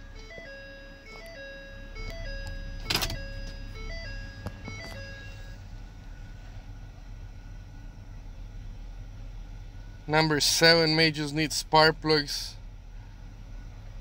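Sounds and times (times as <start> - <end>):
truck engine idling: 0.0 - 14.0
electronic jingle tune: 0.1 - 5.6.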